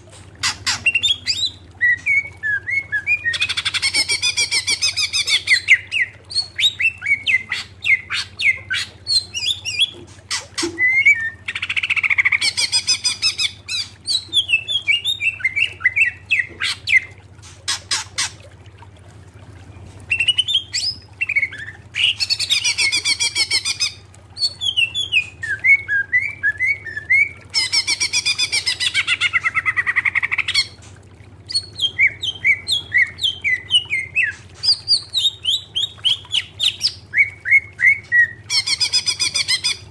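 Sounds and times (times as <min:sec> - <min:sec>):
bird singing trills and whistles: 0:10.8 - 0:17.1, 0:20.1 - 0:30.7, 0:31.5 - 0:39.9.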